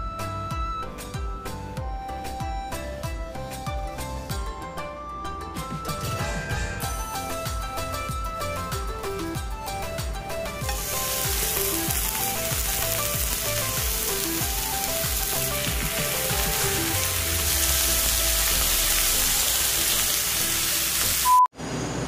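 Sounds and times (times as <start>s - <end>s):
light background music: 0.0s - 21.2s
meat sizzling on a grill pan: 10.7s - 21.3s
short beep: 21.2s - 21.5s.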